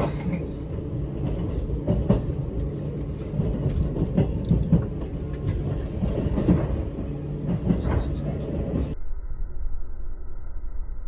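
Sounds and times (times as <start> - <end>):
train cabin rumble: 0.0 - 9.0
train wheel clacks: 1.2 - 9.0.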